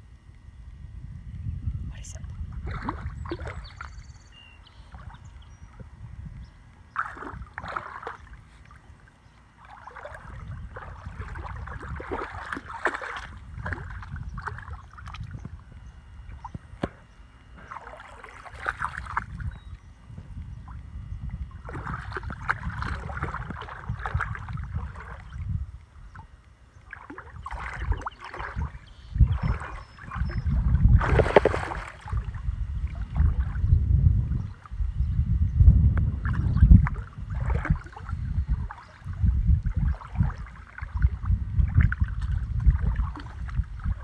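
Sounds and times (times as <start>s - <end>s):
low steady rumble: 0.0s - 44.0s
dog splashing through muddy water: 7.0s - 8.3s, 9.6s - 15.2s, 17.6s - 19.4s, 21.6s - 25.3s, 26.9s - 32.3s.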